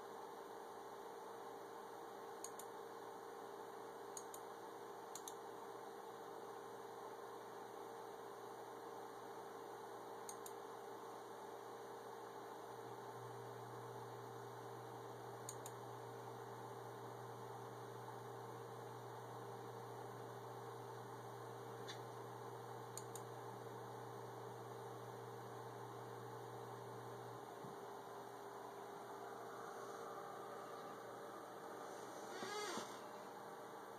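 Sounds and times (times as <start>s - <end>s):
faint electrical hum: 0.0s - 33.9s
computer mouse clicks: 2.4s - 2.7s, 4.1s - 4.5s, 5.1s - 5.4s, 10.2s - 10.6s, 15.5s - 15.8s, 23.0s - 23.3s
lower hum: 25.3s - 33.9s.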